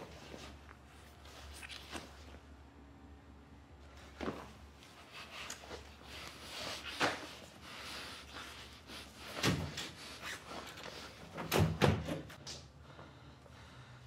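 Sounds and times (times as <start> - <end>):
knocks against walls and furniture: 11.4 - 12.4.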